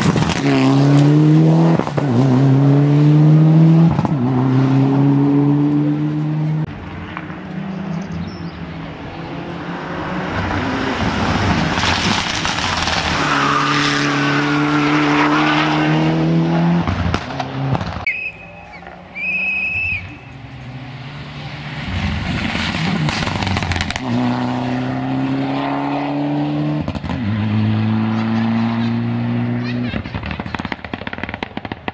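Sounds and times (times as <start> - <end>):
rally car engines revving: 0.0 - 31.9
short high beeps: 18.1 - 20.4.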